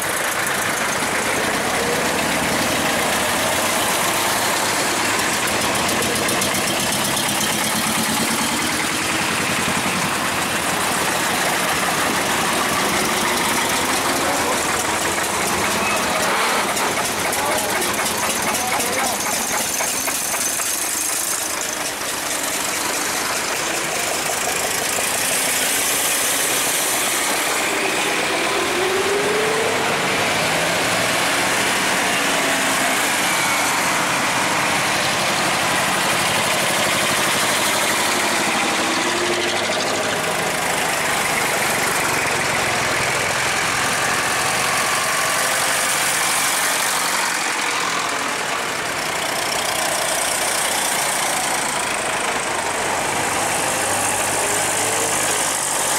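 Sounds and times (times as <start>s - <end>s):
tractor engines running at low speed: 0.0s - 55.9s.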